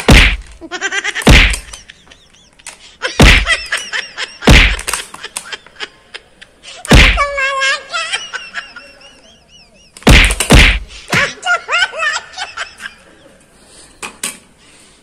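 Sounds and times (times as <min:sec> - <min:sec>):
loud thuds: 0:00.0 - 0:00.6, 0:01.2 - 0:01.8, 0:03.2 - 0:03.7, 0:04.4 - 0:05.0, 0:06.9 - 0:07.4, 0:10.0 - 0:11.3.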